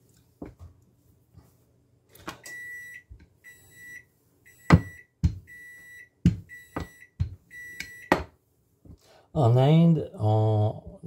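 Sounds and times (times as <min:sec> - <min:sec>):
electronic appliance beeping: 0:02.5 - 0:08.2.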